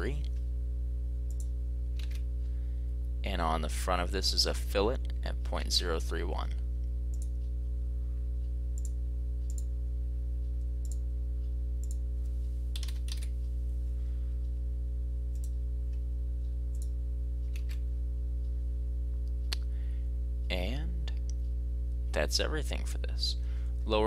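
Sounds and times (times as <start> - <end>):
low electrical hum: 0.0 - 24.0
computer mouse clicks: 1.3 - 2.2, 8.8 - 9.7, 11.8 - 12.0, 12.7 - 13.3, 15.3 - 15.6, 17.5 - 17.8
keyboard keystrokes: 12.7 - 13.3.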